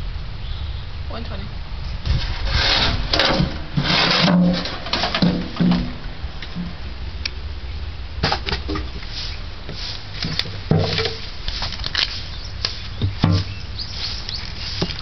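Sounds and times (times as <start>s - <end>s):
firewood knocking and scraping: 2.0s - 6.8s, 8.2s - 13.6s, 14.2s - 15.0s.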